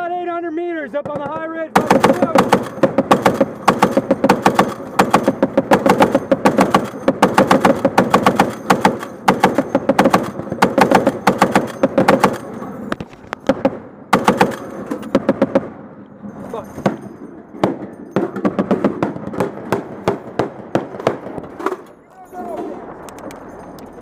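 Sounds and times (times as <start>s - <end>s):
heavy machine gun bursts: 1.8s - 12.8s, 13.4s - 15.7s.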